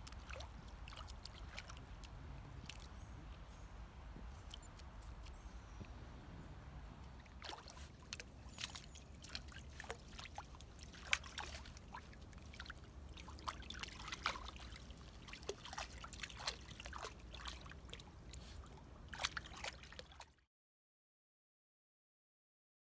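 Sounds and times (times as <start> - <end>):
dog splashing in shallow water: 0.0 - 5.6, 6.5 - 20.4
low steady rumble: 0.0 - 15.7.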